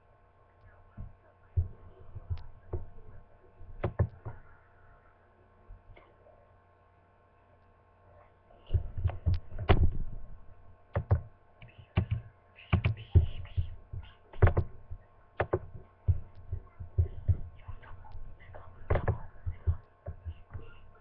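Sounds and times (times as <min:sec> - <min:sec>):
faint steady hum: 0:00.0 - 0:21.0
low thumps and knocks: 0:12.8 - 0:17.8.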